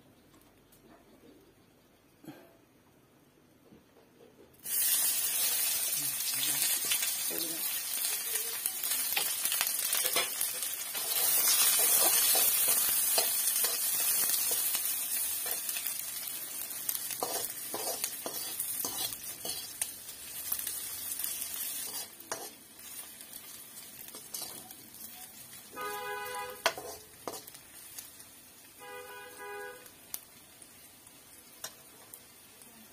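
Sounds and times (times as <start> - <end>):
onions sizzling in hot oil: 4.6 - 32.9
metal spatula scraping pan: 10.1 - 14.7, 17.2 - 19.9, 21.7 - 22.6, 25.8 - 27.6.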